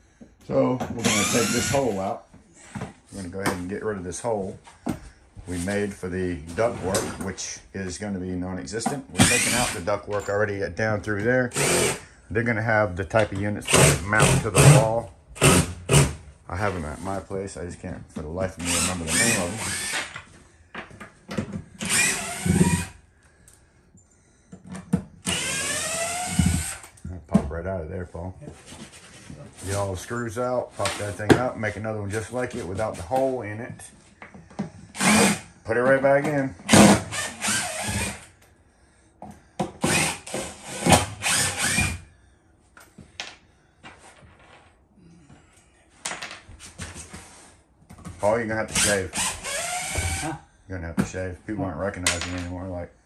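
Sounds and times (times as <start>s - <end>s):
power drill whining: 1.0s - 2.1s, 9.2s - 9.9s, 11.5s - 12.0s, 18.6s - 20.2s, 21.8s - 23.0s, 25.2s - 26.9s, 34.9s - 35.5s, 36.7s - 38.3s, 39.8s - 42.0s, 48.8s - 50.4s.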